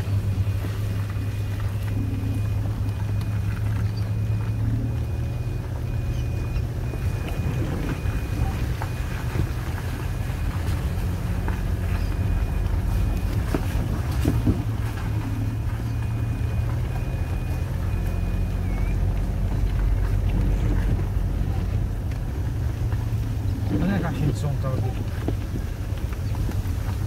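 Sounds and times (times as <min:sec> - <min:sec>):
vehicle engine rumble: 0:00.0 - 0:27.0
wind noise on microphone: 0:11.8 - 0:16.3, 0:24.8 - 0:27.0.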